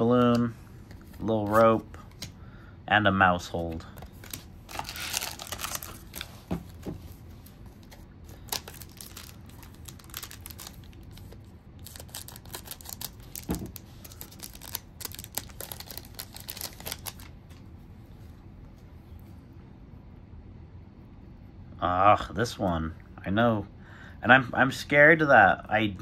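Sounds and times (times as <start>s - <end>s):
wrapper crinkling and tearing: 4.1s - 6.5s, 7.8s - 17.3s.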